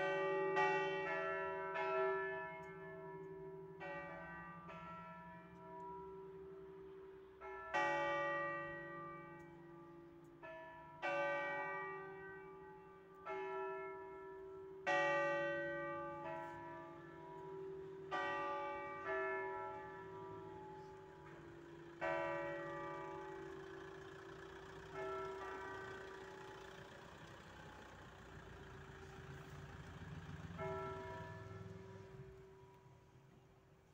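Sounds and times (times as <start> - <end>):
church bells pealing: 0.0 - 32.9.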